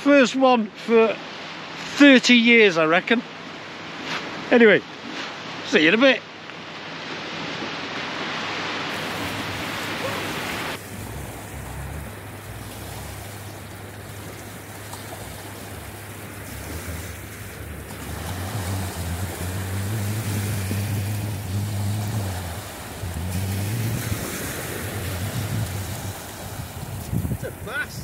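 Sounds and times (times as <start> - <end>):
sea surf washing onto beach: 1.0 - 28.0
wind rumbling on microphone: 8.9 - 28.0.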